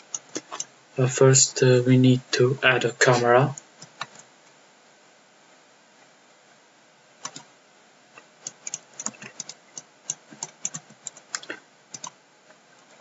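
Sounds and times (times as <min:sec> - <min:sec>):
keyboard and mouse clicking: 0:03.8 - 0:04.2, 0:07.2 - 0:07.5, 0:08.4 - 0:12.2.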